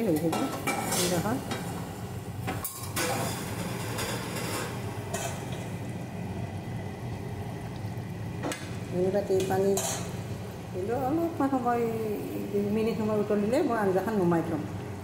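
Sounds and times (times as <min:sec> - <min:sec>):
curry simmering and bubbling: 0:03.5 - 0:10.8.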